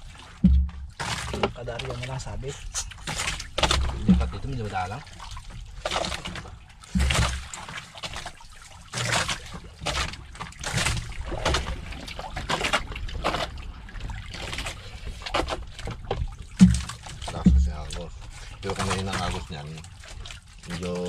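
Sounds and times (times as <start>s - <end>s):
water splashing against boat: 0.0s - 21.0s
low thuds: 0.4s - 1.6s, 3.6s - 4.8s, 16.0s - 19.4s.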